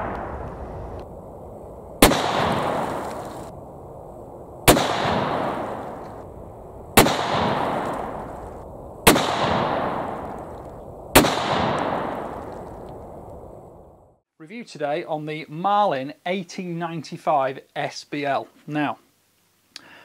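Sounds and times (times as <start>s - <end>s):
rifle shots with echo: 2.0s - 3.3s, 4.7s - 6.0s, 7.0s - 8.3s, 9.0s - 10.4s, 11.1s - 12.5s.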